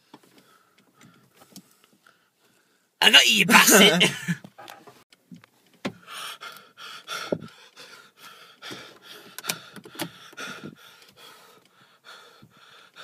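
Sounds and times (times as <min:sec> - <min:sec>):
person panting: 0:06.0 - 0:13.0.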